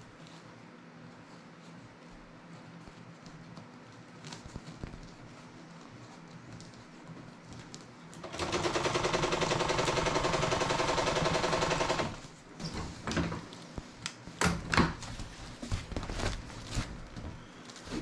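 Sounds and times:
sewing machine running: 8.2 - 12.3
stiff fabric rustling: 15.0 - 18.0.

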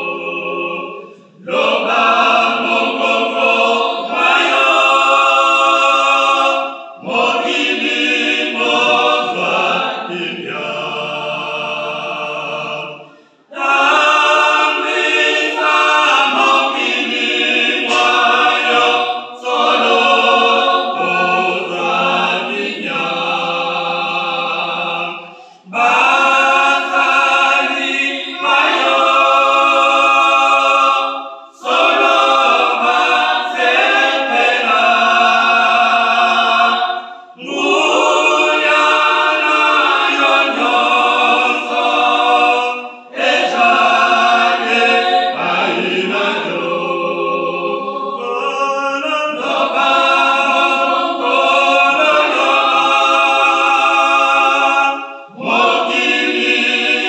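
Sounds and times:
choir singing a cappella hymn: 0.0 - 57.0.

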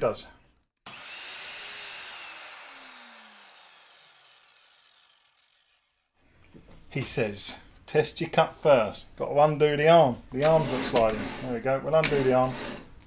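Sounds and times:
saw blade whine spinning down: 0.9 - 6.1.

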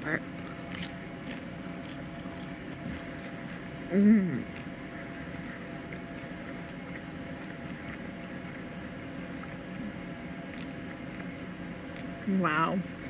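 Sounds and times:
low background hum: 0.0 - 13.0
person chewing food: 0.2 - 12.3.

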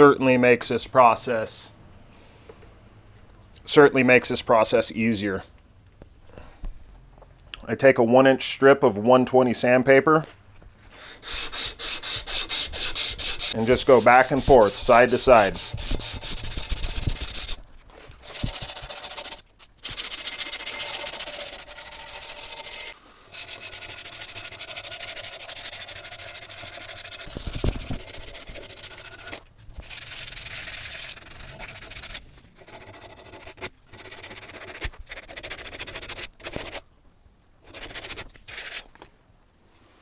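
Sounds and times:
sandpaper rasping on wood: 10.9 - 17.6, 18.2 - 36.8, 37.7 - 38.8.

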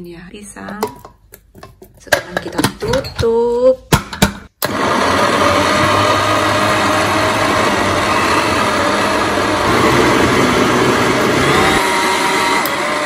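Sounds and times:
blender motor whirring: 4.6 - 13.0.

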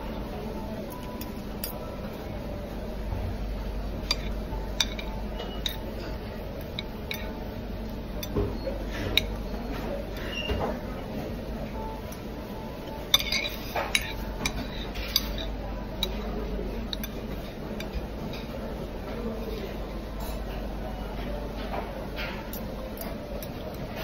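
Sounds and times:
low background noise: 0.0 - 24.0
cutlery clinking on plates: 13.1 - 16.2.

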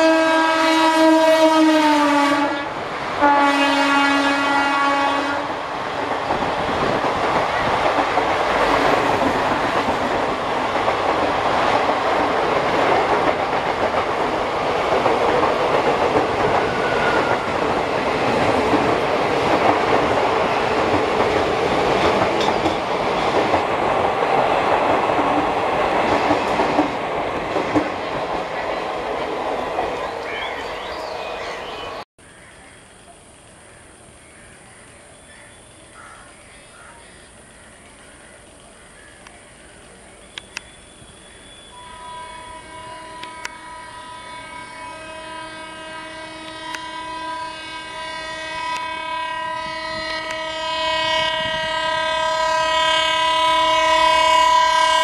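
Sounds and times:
train wheels on rail joints: 1.1 - 32.0.

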